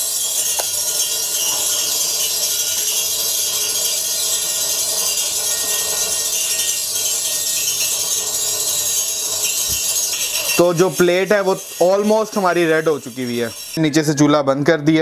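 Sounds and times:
water beads sizzling on hot plate: 0:00.0 - 0:13.8.

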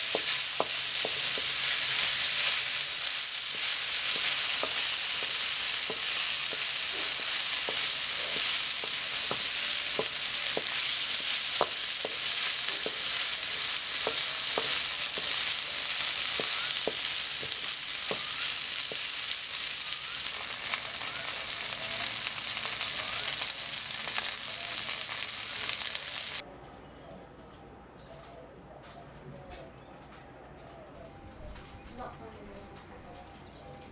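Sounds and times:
utensil clicking on pan: 0:00.0 - 0:19.3
vegetables sizzling in oil: 0:00.0 - 0:26.4.

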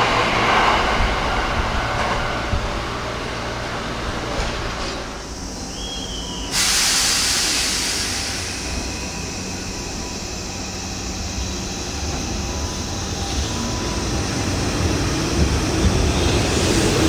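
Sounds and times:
train low rumble: 0:00.0 - 0:17.0
compressed air hiss: 0:06.5 - 0:09.2.

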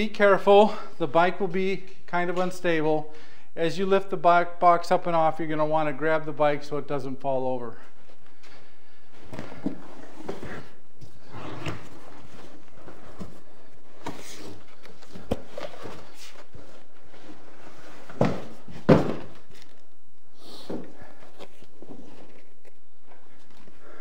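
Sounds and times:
cardboard scraping and rustling: 0:09.4 - 0:19.7
box thumping down: 0:18.1 - 0:19.6.

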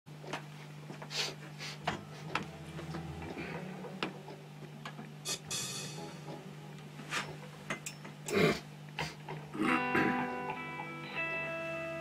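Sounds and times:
steady low hum: 0:00.2 - 0:10.8
electric guitar notes and chords: 0:02.0 - 0:06.9, 0:09.5 - 0:12.0.

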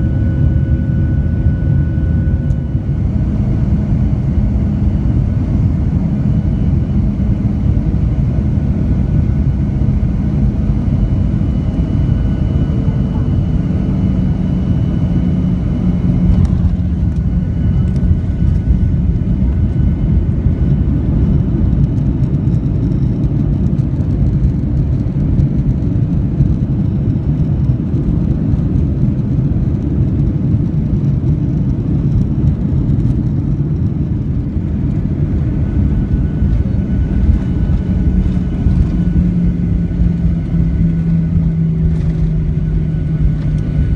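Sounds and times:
engine hum: 0:00.0 - 0:43.9
jet engines at low power: 0:00.0 - 0:43.9.

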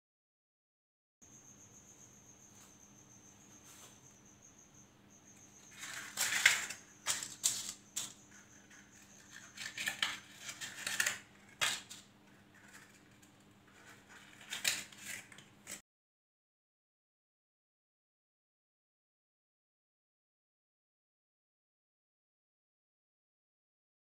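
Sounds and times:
paper liners crinkling: 0:05.7 - 0:15.8.

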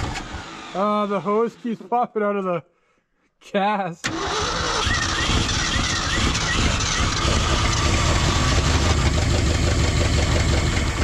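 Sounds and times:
starter cranking engine: 0:04.0 - 0:11.0.

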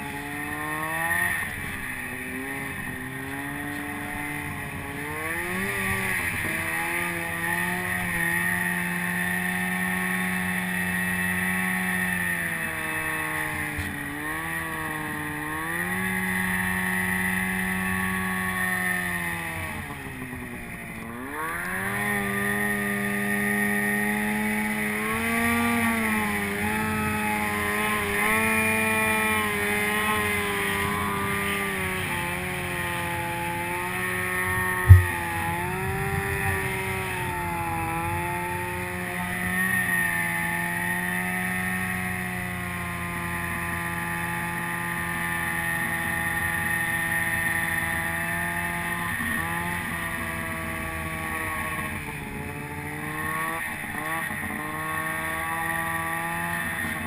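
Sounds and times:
snowmobile engine revving: 0:00.0 - 0:57.0
sharp knock: 0:34.9 - 0:35.4.

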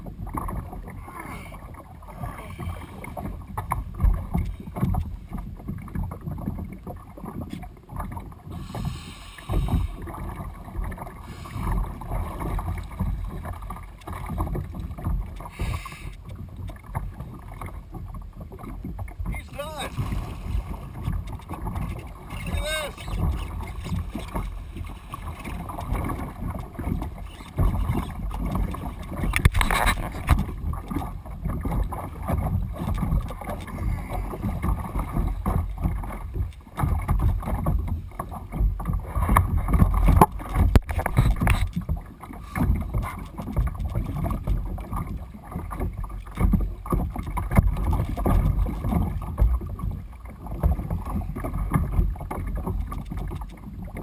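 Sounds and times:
water splashing against kayak hull: 0:00.0 - 0:54.0
wind noise on microphone: 0:18.8 - 0:42.0.

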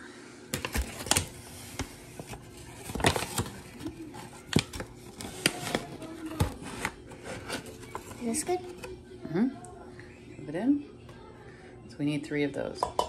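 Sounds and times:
paper bag rustling: 0:00.6 - 0:08.8.

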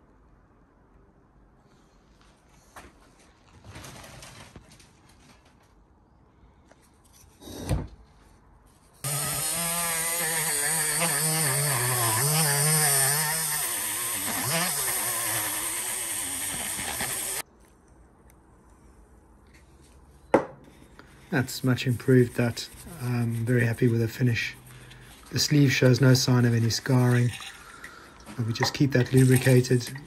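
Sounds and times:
rotary tool wire brushing metal: 0:09.0 - 0:17.4, 0:21.6 - 0:27.7, 0:28.3 - 0:30.0.

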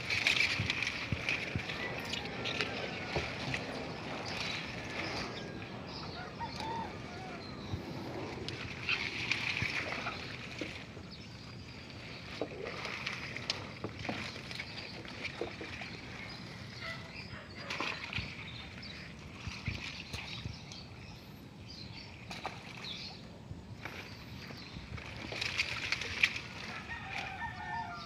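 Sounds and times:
leaves and stems rustling: 0:00.0 - 0:10.8
water sloshing: 0:00.0 - 0:28.0.

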